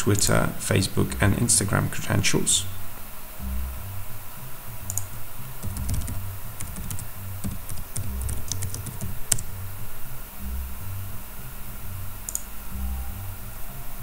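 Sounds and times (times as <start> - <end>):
computer keyboard typing: 4.9 - 9.5.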